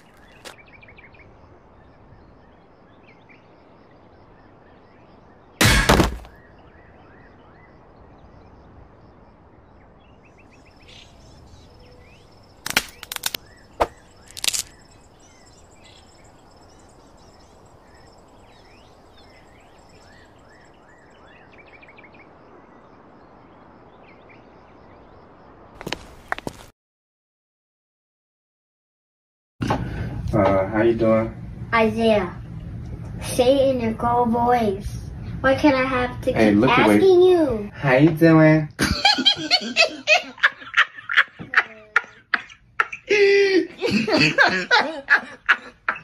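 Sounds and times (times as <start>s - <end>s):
birds chirping: 0.0s - 26.7s
sharp loud hits: 5.6s - 6.3s.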